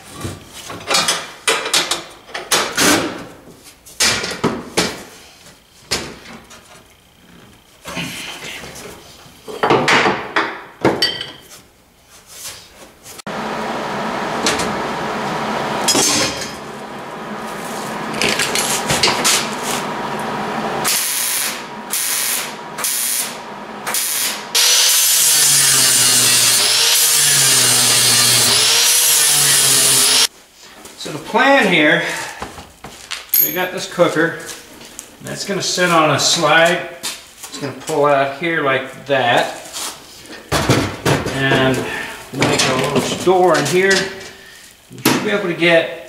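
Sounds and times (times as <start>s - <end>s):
loud steady power tool: 13.3s - 30.3s
mig welding: 20.8s - 30.3s.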